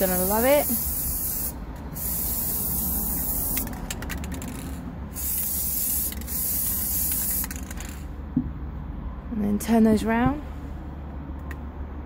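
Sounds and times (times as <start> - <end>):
spray paint can hissing: 0.0 - 8.1.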